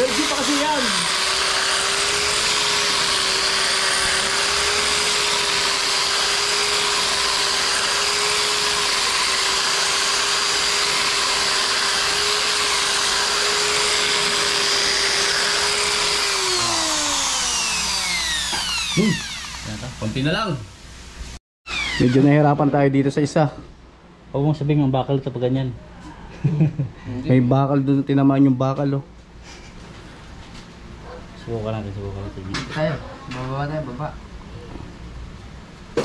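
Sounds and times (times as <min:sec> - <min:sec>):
electric drill running: 0:00.0 - 0:20.2, 0:21.7 - 0:22.4.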